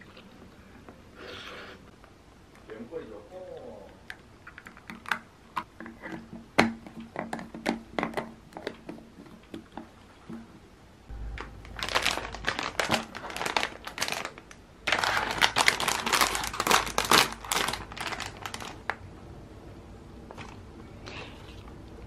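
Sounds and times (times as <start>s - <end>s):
plastic wrapper crinkling: 11.2s - 19.0s.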